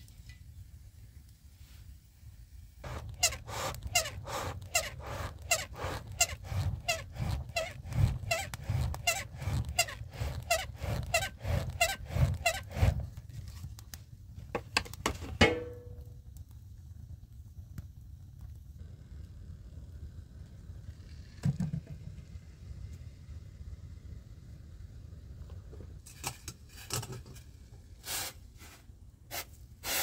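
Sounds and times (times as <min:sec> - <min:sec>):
loud metal clang: 0:15.4 - 0:16.0.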